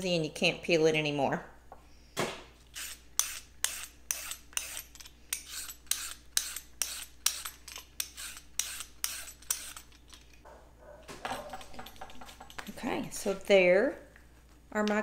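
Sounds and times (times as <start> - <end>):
peeler scraping carrot: 2.7 - 10.1.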